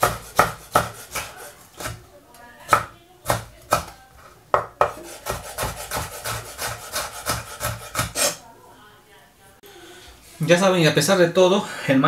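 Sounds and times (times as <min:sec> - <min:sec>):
knife chopping on wooden board: 0:00.0 - 0:02.0, 0:02.7 - 0:08.4.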